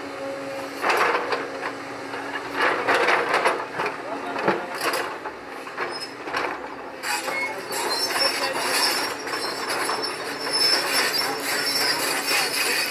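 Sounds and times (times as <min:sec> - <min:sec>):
excavator working: 0:00.0 - 0:12.9
metal squealing and clanking: 0:05.7 - 0:12.9.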